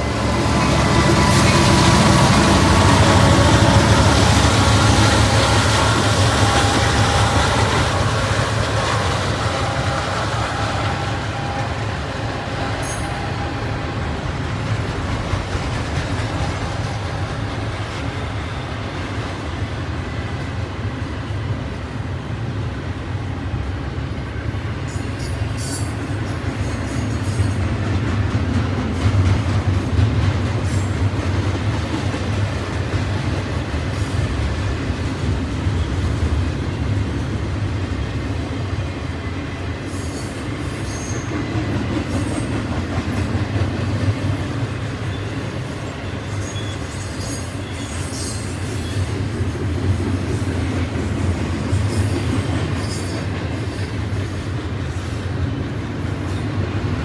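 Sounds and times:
train wheels rumbling on rail: 0.0 - 57.0
high wheel squeals: 0.2 - 14.1, 39.9 - 41.4, 45.0 - 49.1.

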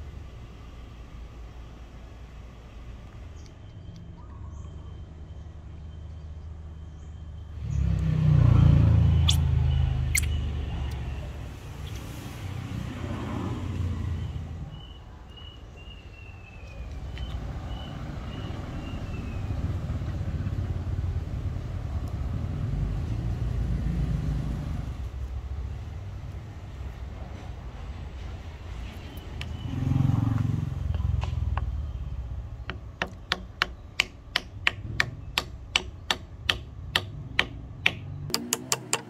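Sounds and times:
traffic rumble: 0.0 - 39.0
vehicle passing: 7.5 - 14.8, 17.2 - 33.0.

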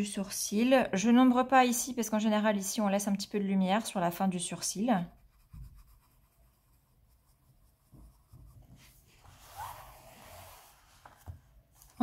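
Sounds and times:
pencil shading on paper: 4.7 - 9.1.

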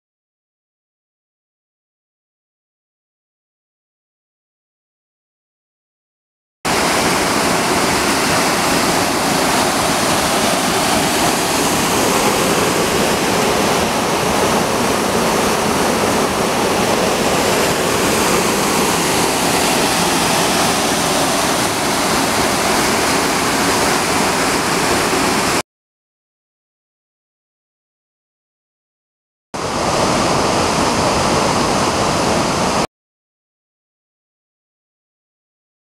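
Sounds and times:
water rushing over rocks: 6.7 - 25.6, 29.6 - 32.9.

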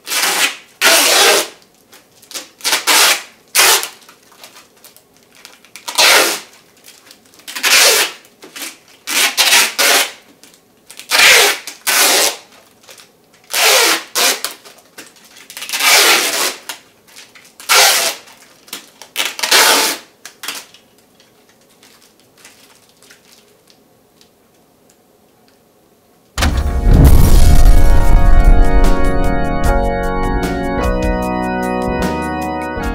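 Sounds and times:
tape ripping off roll: 0.0 - 10.3, 10.9 - 20.8
organ music: 26.4 - 32.9.

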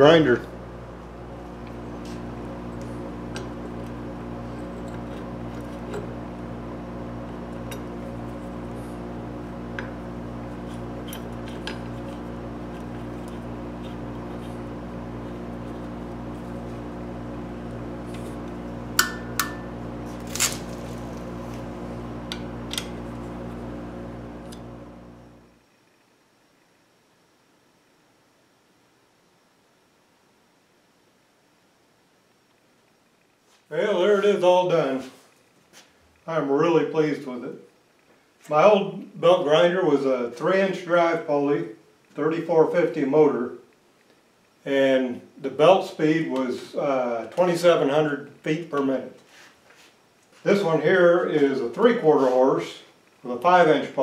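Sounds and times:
electric motor humming: 0.0 - 25.6.

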